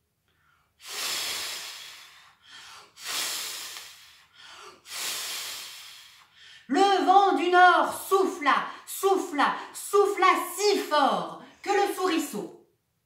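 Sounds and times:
short breaths: 0.3 - 6.7.

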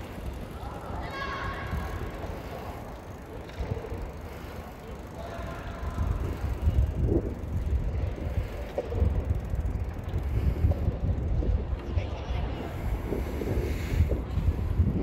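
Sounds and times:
distant voices: 0.0 - 15.0
wind buffeting microphone: 5.6 - 15.0.

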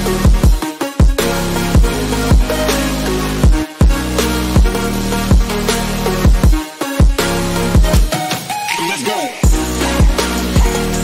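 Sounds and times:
deep kick drums: 0.2 - 1.2, 1.8 - 2.6, 3.4 - 5.6, 6.2 - 7.2, 7.8 - 8.1, 9.4 - 10.9
held synth notes: 1.2 - 11.0.

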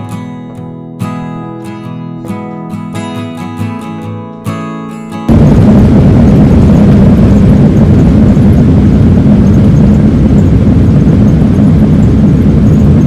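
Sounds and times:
jet airliner rolling on runway: 5.3 - 13.0.

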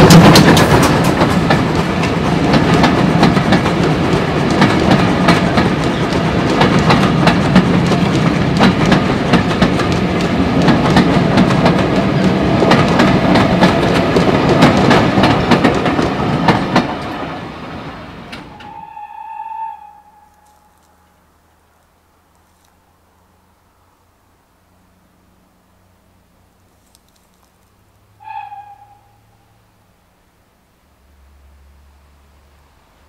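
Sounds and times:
train wheels clicking over rails: 0.0 - 18.8.

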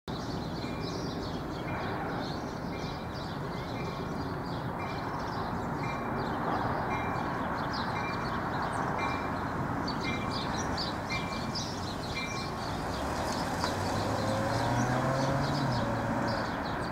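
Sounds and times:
birds chirping: 0.1 - 16.9
train rumbling: 8.8 - 16.5.

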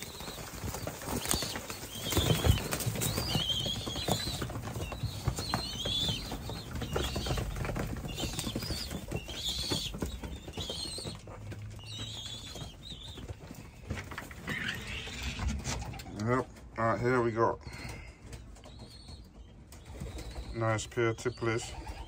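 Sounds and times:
pigeons flapping wings: 0.0 - 16.0
high-pitched squeaky calls: 14.4 - 16.2.

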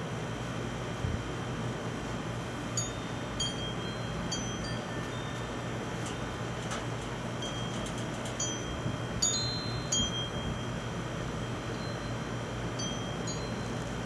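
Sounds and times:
metal wind chimes ringing: 2.8 - 6.5, 7.4 - 11.0, 11.6 - 14.0.

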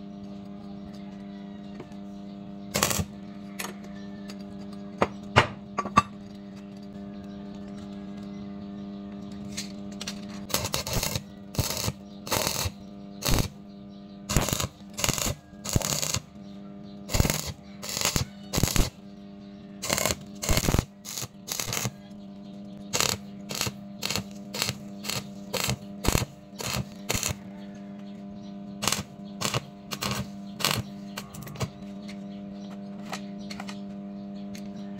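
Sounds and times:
electrical hum: 0.0 - 34.9
welding arc crackling: 2.7 - 3.2, 10.5 - 13.6, 14.3 - 16.3, 17.1 - 19.0, 19.8 - 21.9, 22.9 - 27.4, 28.8 - 31.8.

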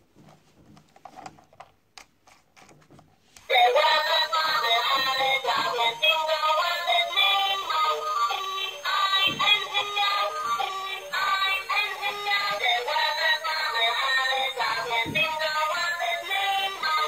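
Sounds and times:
tinny electronic toy tune: 3.5 - 15.0.

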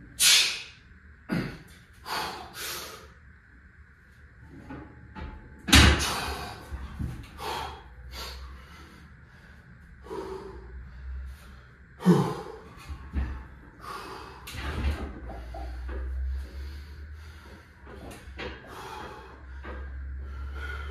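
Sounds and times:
heavy breathing: 1.3 - 3.2, 6.0 - 20.9.

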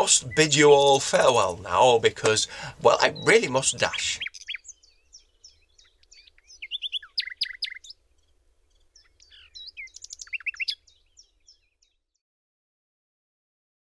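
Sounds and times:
birds chirping and whistling: 0.0 - 1.5, 2.4 - 12.0.

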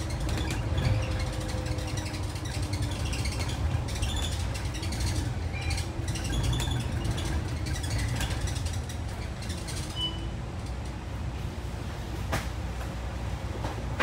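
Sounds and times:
interior fittings rattling and creaking: 0.0 - 11.0
bus engine rumble: 0.0 - 14.0
high squeak: 0.3 - 10.3.

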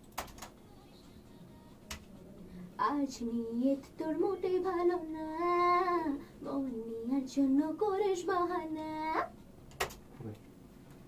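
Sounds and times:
girl singing: 0.5 - 2.0, 2.7 - 9.4.

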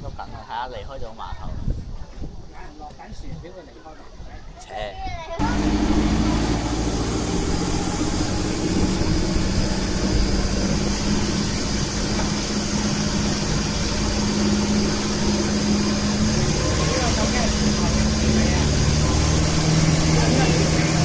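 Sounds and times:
boat engine humming: 5.4 - 21.0
water rushing: 5.4 - 21.0.

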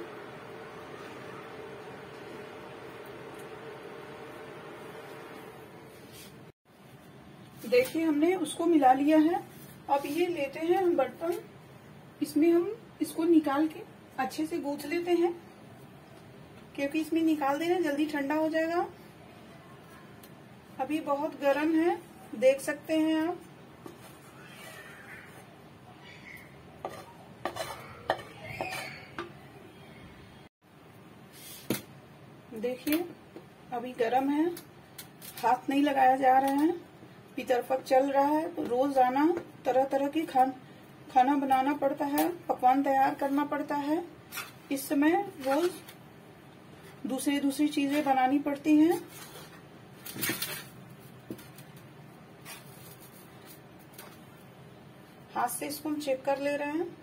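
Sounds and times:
steel spoon scraping dough: 26.8 - 29.2.

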